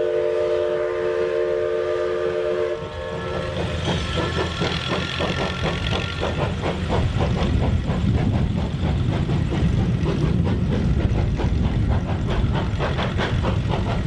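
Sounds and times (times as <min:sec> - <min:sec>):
engine running: 0:02.8 - 0:14.0.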